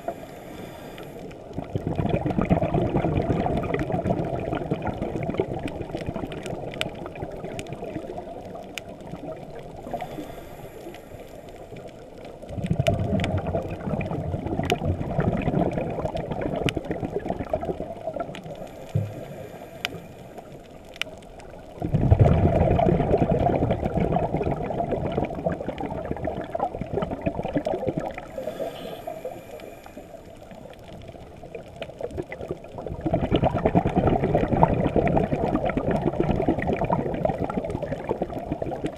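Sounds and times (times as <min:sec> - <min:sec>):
regulator inhalation hiss: 0:00.0 - 0:01.3, 0:09.9 - 0:11.7, 0:18.6 - 0:20.4, 0:28.3 - 0:30.7
exhaled bubbles rushing: 0:01.5 - 0:10.1, 0:12.4 - 0:20.5, 0:21.6 - 0:28.5, 0:30.5 - 0:38.9.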